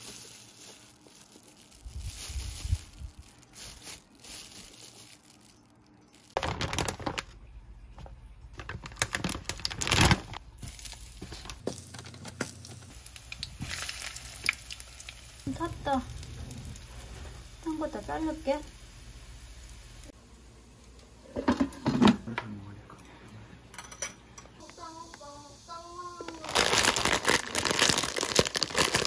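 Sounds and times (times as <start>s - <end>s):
plastic bag crinkling: 0.0s - 7.5s, 8.6s - 18.1s, 26.3s - 29.0s
kitchen clatters: 21.2s - 22.4s, 23.6s - 24.6s
plastic toy pieces rattling: 26.4s - 29.0s.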